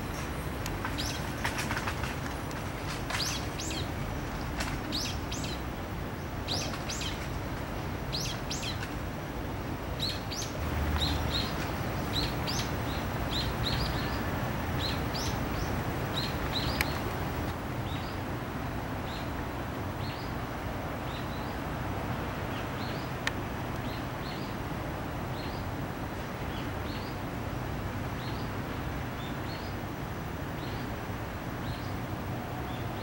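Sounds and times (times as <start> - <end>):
low background noise: 0.0 - 33.0
small songbird chirping: 3.1 - 9.0, 9.9 - 18.2.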